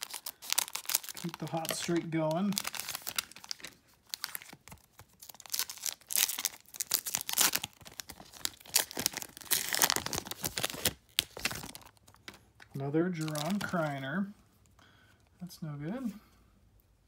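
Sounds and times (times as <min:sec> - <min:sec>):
wrapper tearing and crinkling: 0:00.0 - 0:12.4, 0:13.1 - 0:14.0.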